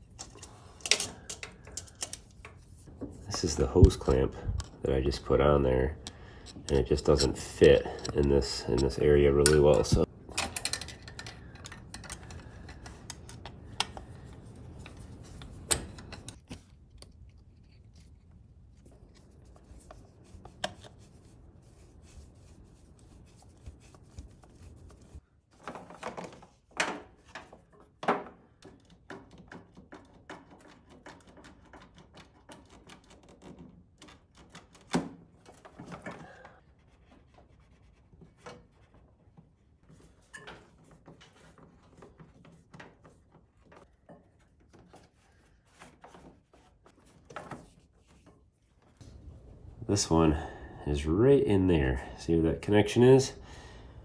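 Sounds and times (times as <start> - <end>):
hands clicking and tapping fittings: 0.0 - 4.8, 6.0 - 17.3, 28.6 - 36.5.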